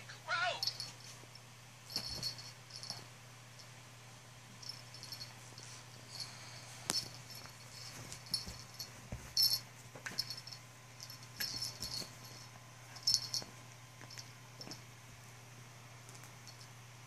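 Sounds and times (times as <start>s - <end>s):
low steady hum: 0.0s - 17.0s
puppy scuffling with toy: 4.7s - 14.8s.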